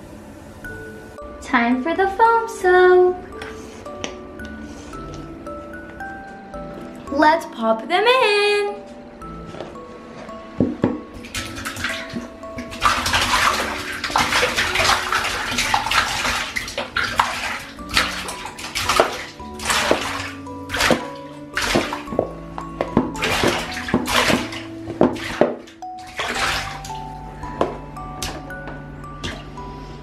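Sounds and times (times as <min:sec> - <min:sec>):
background music: 0:00.0 - 0:30.0
toys splashing into water: 0:11.2 - 0:22.2, 0:23.0 - 0:27.0.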